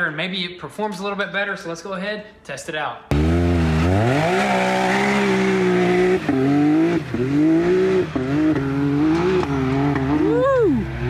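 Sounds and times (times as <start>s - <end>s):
engine pulling hard at full throttle: 3.1s - 11.0s.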